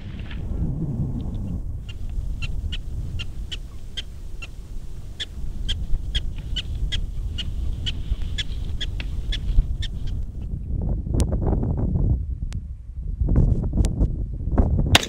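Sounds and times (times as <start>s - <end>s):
prairie dog alarm chirps: 1.8s - 10.5s.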